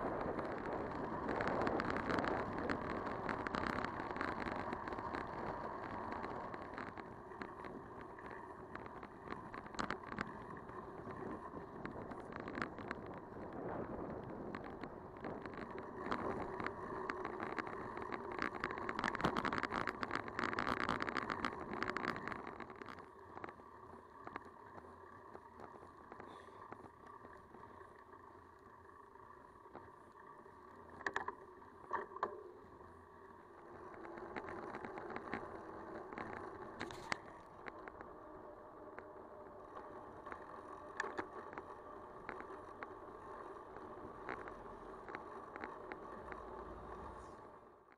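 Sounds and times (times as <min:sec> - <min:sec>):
bicycle tyre rolling: 0:00.0 - 0:47.9
small rattles and clicks: 0:00.0 - 0:47.9
wind: 0:00.0 - 0:47.9.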